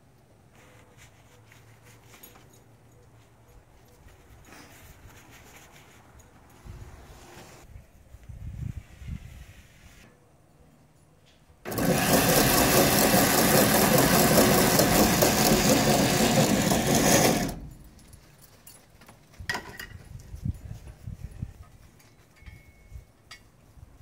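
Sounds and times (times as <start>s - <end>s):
electric drill running: 11.7s - 17.7s.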